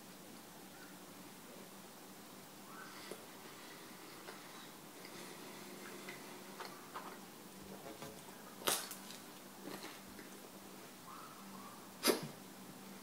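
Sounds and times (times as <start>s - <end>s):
person chewing food: 8.7s - 10.4s.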